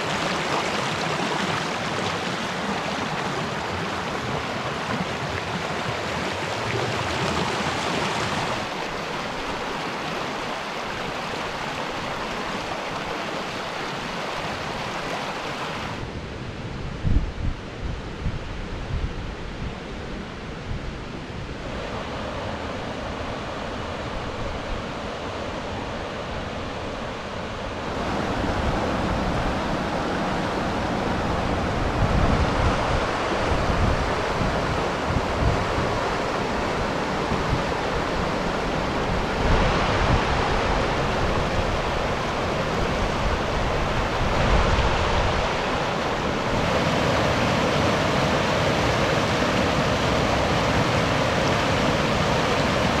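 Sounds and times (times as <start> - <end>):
wind buffeting microphone: 15.8 - 23.3, 24.0 - 53.0.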